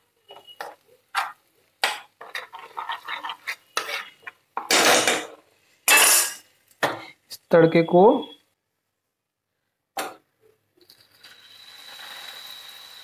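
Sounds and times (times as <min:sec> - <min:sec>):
butter bubbling: 0:00.3 - 0:04.6
steel spoon scraping a pan: 0:00.3 - 0:05.1.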